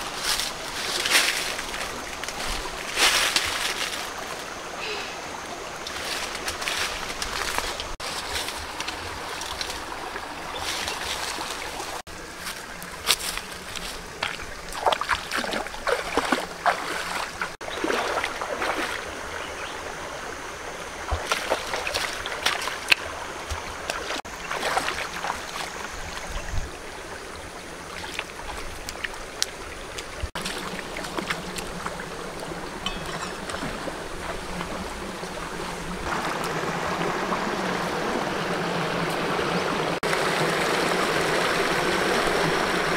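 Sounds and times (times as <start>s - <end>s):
footsteps through leaves and grass: 0.0s - 4.6s, 5.9s - 19.0s, 27.9s - 37.0s
stream flowing: 0.0s - 42.9s
foot splashing in water: 13.1s - 19.1s, 21.1s - 25.8s, 27.9s - 36.7s.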